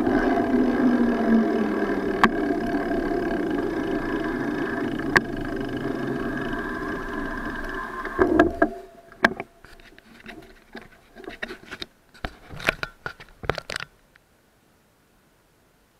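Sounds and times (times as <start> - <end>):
steady hum: 0.0 - 11.8.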